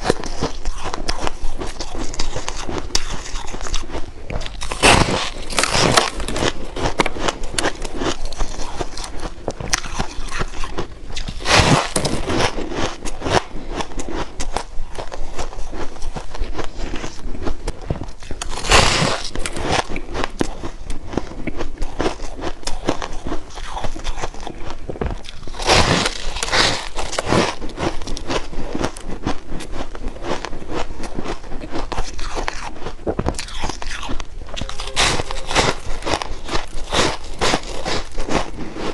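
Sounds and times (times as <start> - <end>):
shaved ice crunching: 4.4 - 13.2, 18.4 - 19.9, 25.2 - 28.2, 34.6 - 38.8.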